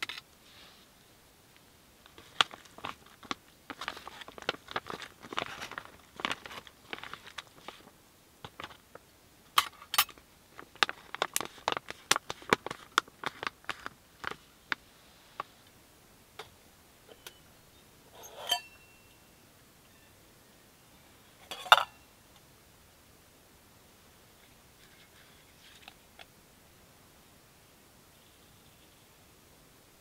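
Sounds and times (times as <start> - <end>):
foil pouch crinkling and tearing: 2.1 - 7.9, 10.1 - 14.4.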